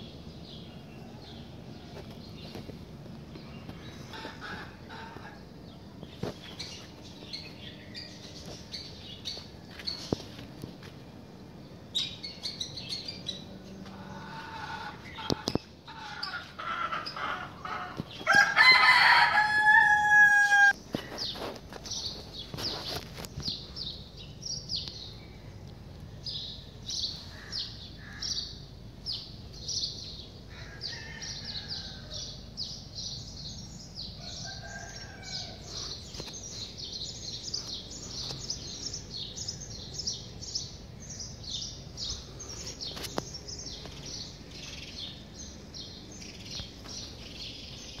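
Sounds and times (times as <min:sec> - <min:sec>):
small birds chirping: 0:00.0 - 0:19.5, 0:20.6 - 0:48.0
rooster crowing: 0:16.0 - 0:20.8, 0:30.5 - 0:32.4, 0:34.2 - 0:36.0.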